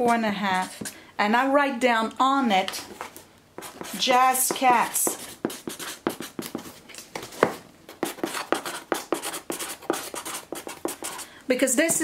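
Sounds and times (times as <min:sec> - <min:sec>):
pen scratching on cardboard: 0:03.6 - 0:06.7, 0:08.0 - 0:11.2.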